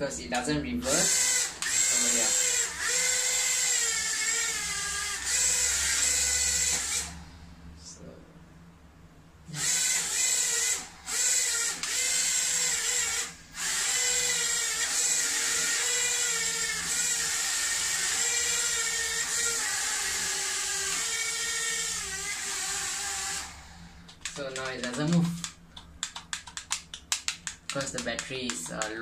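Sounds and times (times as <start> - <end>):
toy drone motors whining: 0.8 - 7.2, 9.5 - 25.6.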